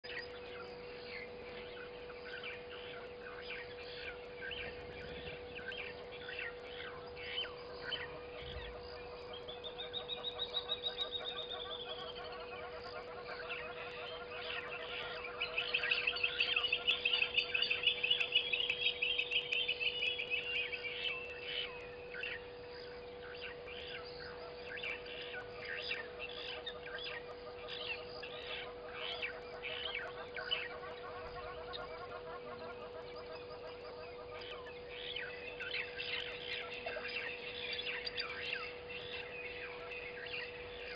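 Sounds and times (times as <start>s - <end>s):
steady hum: 0.0s - 40.9s.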